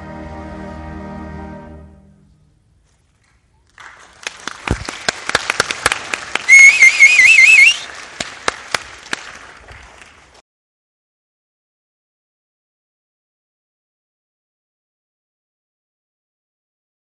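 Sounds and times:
audience applause: 0:03.7 - 0:10.4
warbling whistle from crowd: 0:06.5 - 0:07.9.

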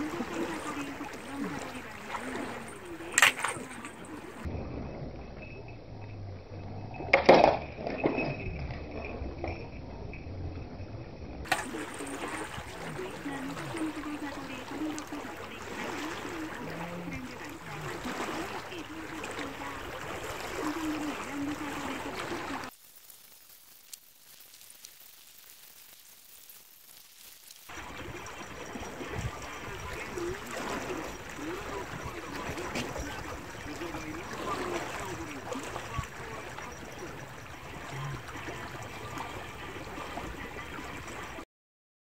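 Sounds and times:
water lapping on rocky shore: 0:00.0 - 0:04.5, 0:11.5 - 0:41.4
wavering low hum: 0:00.0 - 0:22.7.

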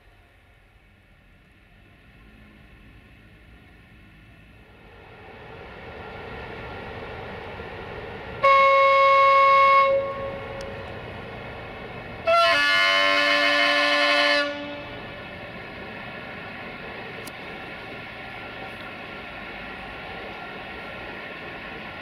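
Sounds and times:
electric locomotive rumble: 0:00.0 - 0:22.0
locomotive horn blasts: 0:08.4 - 0:10.7, 0:12.2 - 0:15.0.

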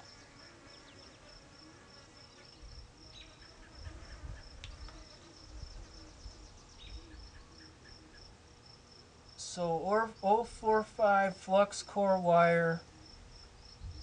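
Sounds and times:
insects chirping: 0:00.0 - 0:09.4, 0:13.0 - 0:14.0.

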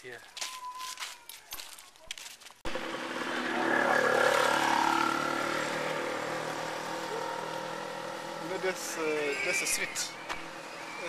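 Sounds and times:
small motorcycle passing by: 0:02.7 - 0:11.0.

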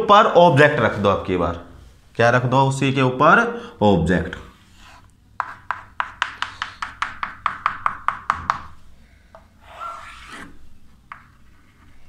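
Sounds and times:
soft long chalk stroke: 0:04.5 - 0:07.0, 0:09.6 - 0:12.0
chalk tapping on blackboard: 0:04.8 - 0:08.8, 0:11.1 - 0:11.8.

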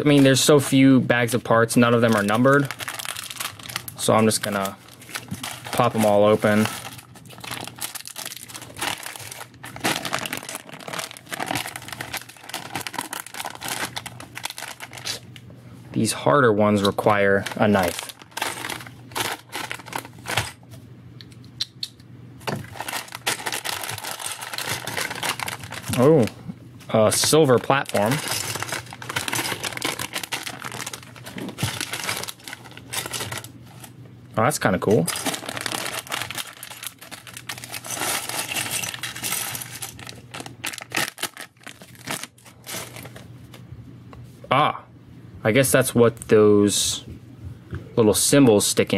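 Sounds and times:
plastic bags crinkling: 0:00.0 - 0:15.2, 0:16.9 - 0:20.6, 0:22.4 - 0:26.3, 0:26.9 - 0:34.0, 0:34.9 - 0:43.3
plastic pieces clattering: 0:02.0 - 0:15.2, 0:17.3 - 0:20.6, 0:22.6 - 0:26.1, 0:27.1 - 0:33.8, 0:35.0 - 0:43.2.

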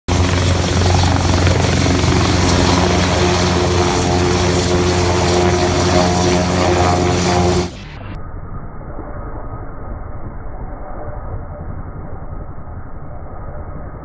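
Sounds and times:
helicopter rotor beat: 0:00.1 - 0:08.0
high turbine whine: 0:00.1 - 0:14.0.

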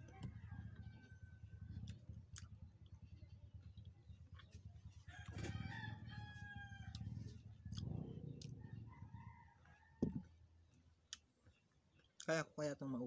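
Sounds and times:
faint low rumble: 0:00.0 - 0:12.2
rooster crowing: 0:05.1 - 0:07.1, 0:08.6 - 0:10.3.

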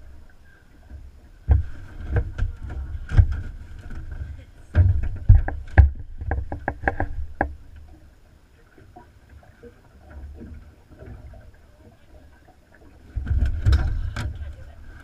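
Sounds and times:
low steady rumble: 0:00.0 - 0:15.0
knocks on aluminium boat deck: 0:04.8 - 0:07.6.

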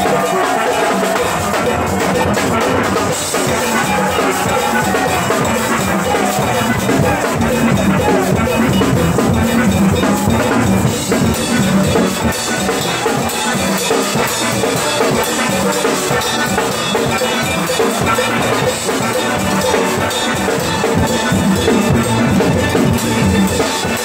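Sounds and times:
drum kit beat: 0:00.0 - 0:24.0.

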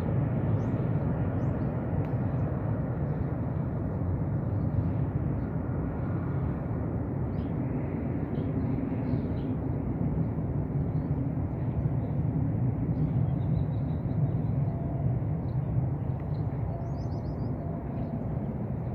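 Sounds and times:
distant jet engines rumbling: 0:00.0 - 0:18.9
faint bird chirps: 0:16.2 - 0:18.2.

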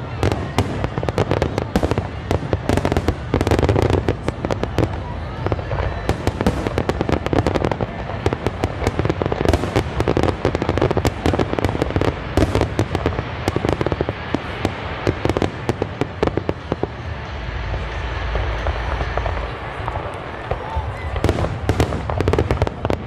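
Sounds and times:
fireworks bangs and crackling: 0:00.0 - 0:23.0
low rumble: 0:12.1 - 0:22.2.

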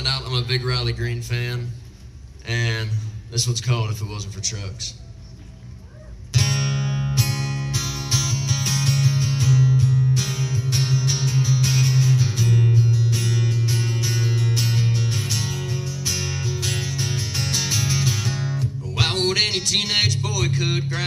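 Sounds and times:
strummed acoustic-electric guitar: 0:06.3 - 0:21.0.

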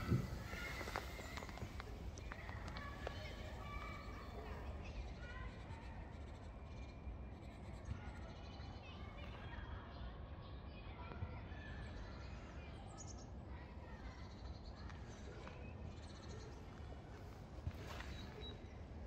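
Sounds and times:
faint bird chirps: 0:00.0 - 0:08.8, 0:11.5 - 0:19.0.

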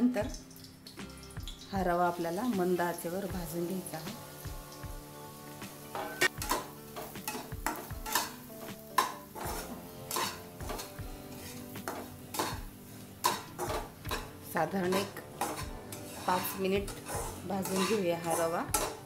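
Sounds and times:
metal spatula scraping a pan: 0:05.6 - 0:19.0
spatula clinking against pan: 0:09.0 - 0:10.9, 0:13.2 - 0:14.3, 0:14.9 - 0:19.0.

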